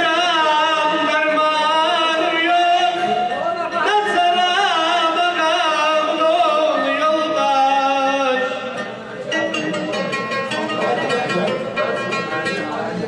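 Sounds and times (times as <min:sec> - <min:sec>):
man singing into a microphone: 0:00.0 - 0:09.0
plucked string accompaniment: 0:00.0 - 0:13.0.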